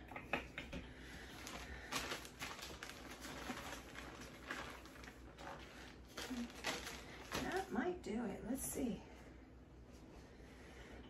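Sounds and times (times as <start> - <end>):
plastic bag rustling: 1.1 - 8.2.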